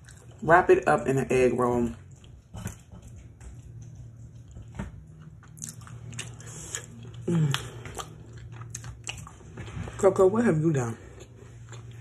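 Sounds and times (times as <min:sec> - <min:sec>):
crunchy chewing: 0:02.0 - 0:10.0.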